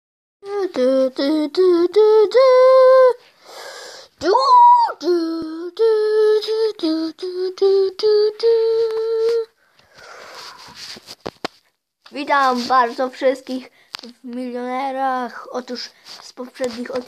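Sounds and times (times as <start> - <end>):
person singing wordless tune: 0.4 - 9.6.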